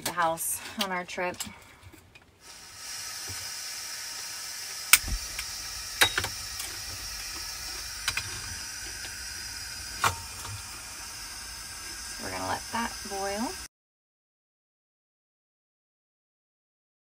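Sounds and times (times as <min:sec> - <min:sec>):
camp stove burner hissing: 0:02.4 - 0:13.7.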